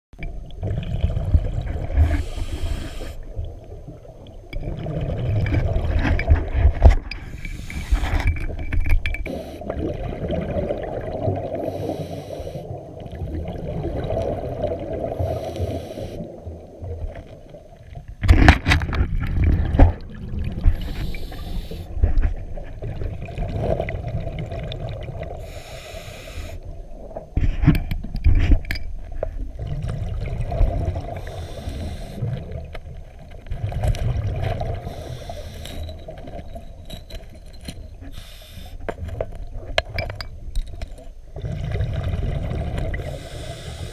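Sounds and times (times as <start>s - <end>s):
exhaled bubbles bursting: 0.4s - 2.5s, 3.2s - 6.6s, 9.3s - 11.8s, 12.7s - 15.4s, 19.0s - 21.0s, 29.5s - 31.3s, 33.5s - 34.9s, 41.3s - 43.1s
diver breathing through regulator: 1.9s - 3.2s, 7.2s - 8.3s, 11.6s - 12.7s, 15.1s - 16.3s, 20.7s - 22.1s, 25.4s - 26.6s, 31.1s - 32.4s, 34.8s - 36.2s, 38.0s - 38.9s, 42.9s - 43.9s.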